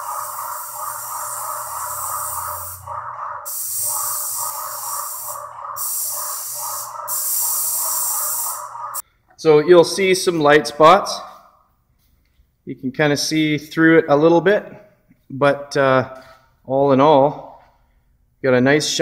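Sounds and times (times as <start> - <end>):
paint sprayer hissing: 0.0 - 9.0.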